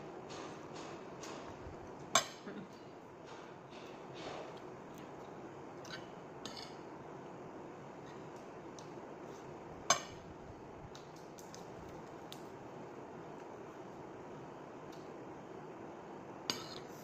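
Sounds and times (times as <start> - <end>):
steady room hiss: 0.0 - 17.0.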